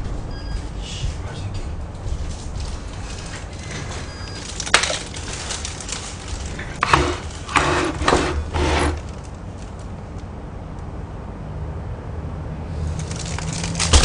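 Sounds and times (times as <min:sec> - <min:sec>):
plastic bag crinkling: 0:02.0 - 0:09.9, 0:12.9 - 0:14.0.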